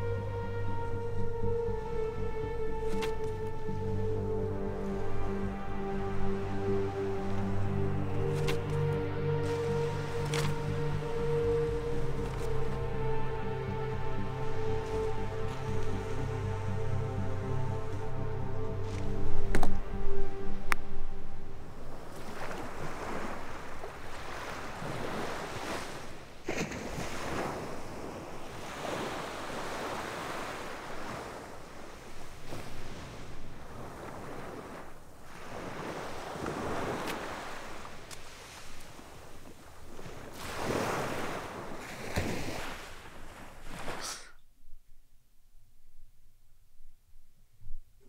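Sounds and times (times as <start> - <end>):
wind: 0.0 - 48.0
sea waves washing onto beach: 21.6 - 44.2.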